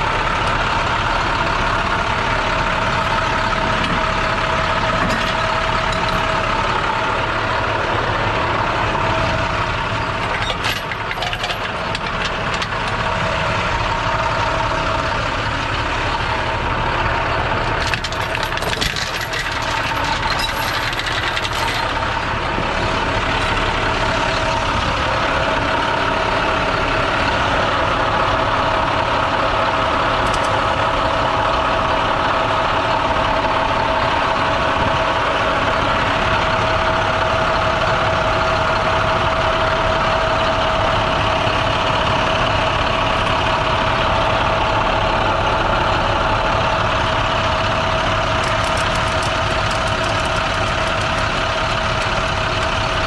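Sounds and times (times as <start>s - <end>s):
constant whine: 0.0s - 53.0s
diesel truck engine idling: 0.0s - 53.0s
metallic clicks and clanks of chains: 5.0s - 6.3s, 10.3s - 12.9s, 17.8s - 22.1s, 48.4s - 51.7s.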